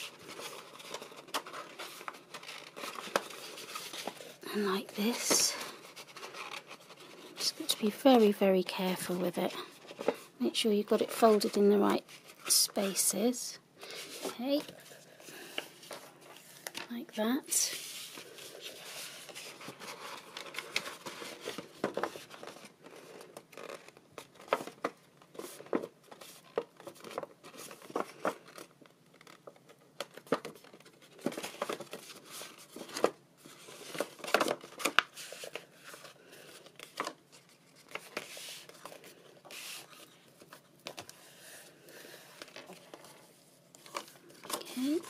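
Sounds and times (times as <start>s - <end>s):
paper rustling and crackling: 0.0s - 8.4s, 17.7s - 45.0s.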